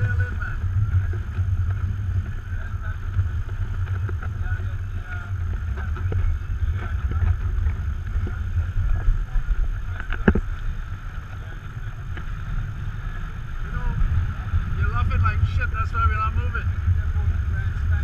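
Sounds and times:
water rushing along hulls: 0:00.0 - 0:18.0
wind buffeting microphone: 0:00.0 - 0:18.0.

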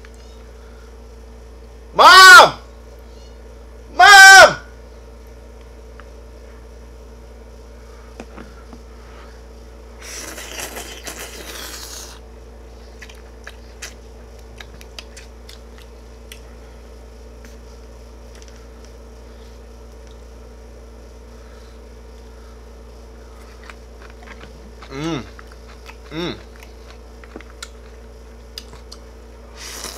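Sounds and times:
steady low hum: 0:00.0 - 0:29.9
slurping noodles: 0:10.0 - 0:12.2, 0:29.5 - 0:29.9
soft chewing clicks: 0:13.0 - 0:16.6, 0:19.8 - 0:20.3, 0:23.3 - 0:29.2.

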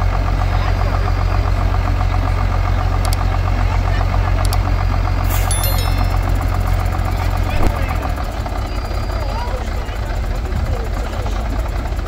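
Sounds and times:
tractor engine idling: 0:00.0 - 0:12.0
click with high chime: 0:05.2 - 0:06.8.

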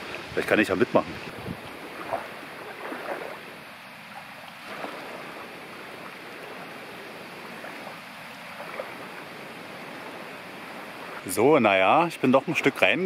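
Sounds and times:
wind rushing over microphone: 0:00.0 - 0:03.4
small waves lapping at shoreline: 0:00.0 - 0:13.0.

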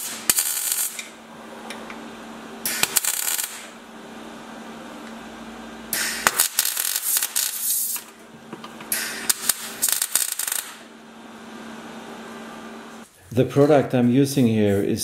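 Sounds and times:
welder arc crackling and popping: 0:00.0 - 0:02.0, 0:02.6 - 0:03.8, 0:05.8 - 0:10.9.

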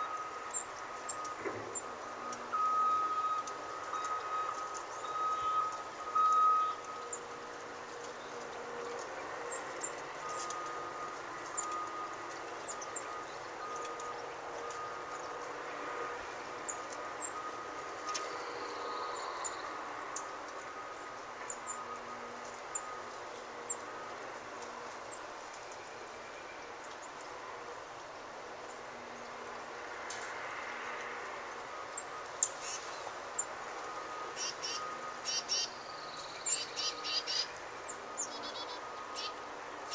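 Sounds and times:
distant heavy machinery droning: 0:00.0 - 0:39.9
small birds chirping: 0:03.0 - 0:22.0, 0:31.0 - 0:39.9.

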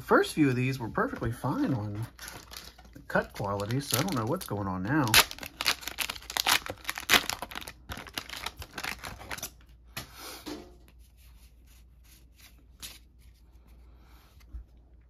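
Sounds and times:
cards rustling: 0:01.0 - 0:09.4, 0:11.4 - 0:14.5
foil wrapper crackling: 0:02.2 - 0:09.6.

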